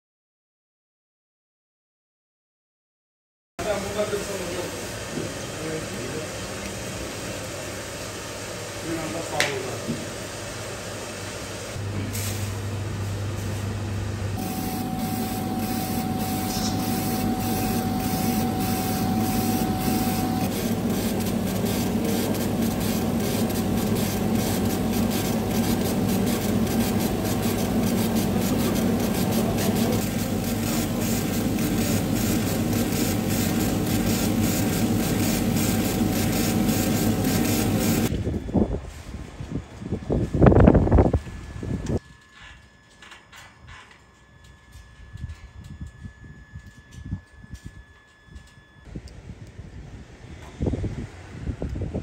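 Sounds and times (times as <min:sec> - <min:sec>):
laser engraver humming: 0:11.8 - 0:38.1
thin whine: 0:14.3 - 0:38.7.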